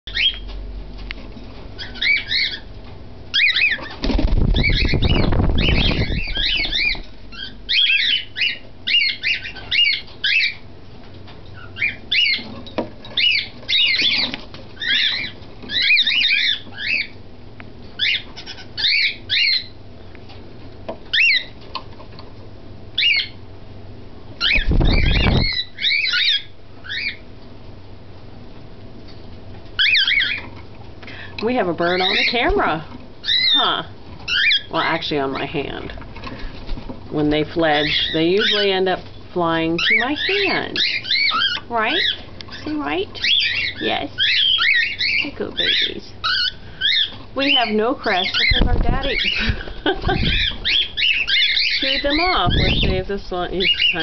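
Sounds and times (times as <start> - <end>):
bird chicks chirping: 0.1 - 0.6, 1.2 - 23.5, 24.2 - 27.6, 29.0 - 54.0
wings flapping: 3.6 - 7.5, 24.4 - 25.7, 48.1 - 54.0.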